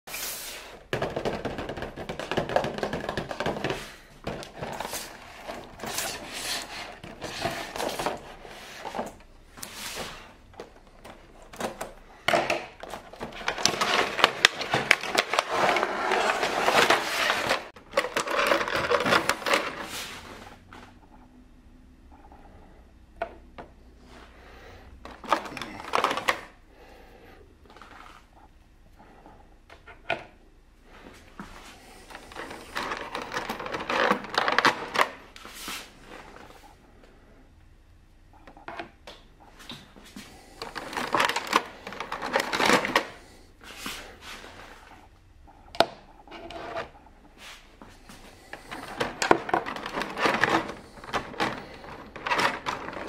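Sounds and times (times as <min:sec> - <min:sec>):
plastic blister tray crackling: 0:00.9 - 0:20.1, 0:32.0 - 0:35.4, 0:40.5 - 0:43.2, 0:48.1 - 0:53.0.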